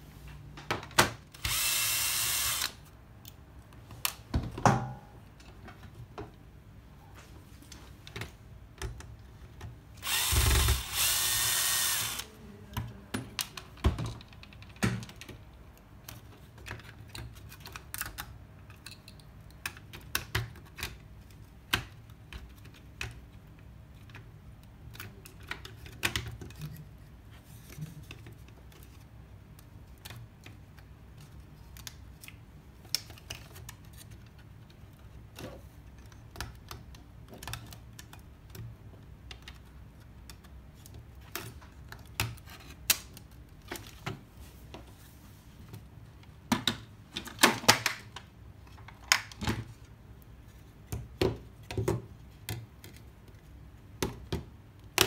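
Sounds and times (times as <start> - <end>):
cordless drill running: 1.4 - 2.8, 10.0 - 12.3.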